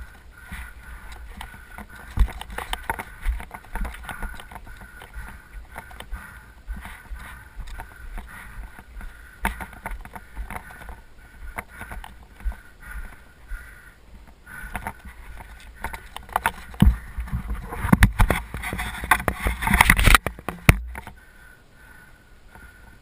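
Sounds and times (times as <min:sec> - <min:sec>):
bike rattling over rocky trail: 0:00.0 - 0:21.2
sharp knocks from bumps: 0:14.7 - 0:21.2.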